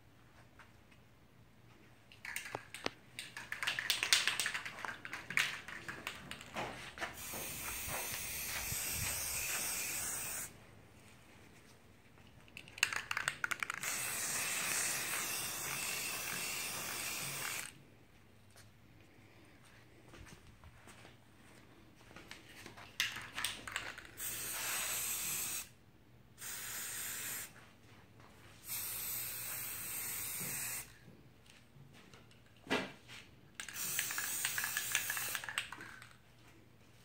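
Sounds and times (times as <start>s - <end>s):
spray can rattling: 2.1s - 10.5s, 12.5s - 17.7s, 23.0s - 25.7s, 28.6s - 30.9s, 33.6s - 36.2s
spray paint hissing: 7.1s - 10.5s, 12.9s - 17.7s, 24.0s - 25.7s, 26.4s - 27.5s, 28.6s - 30.9s, 33.7s - 35.8s.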